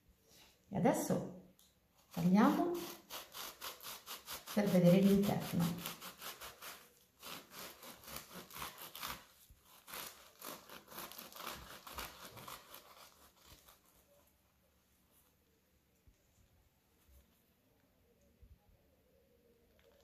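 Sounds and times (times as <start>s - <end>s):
bread knife sawing bread: 2.1s - 14.0s.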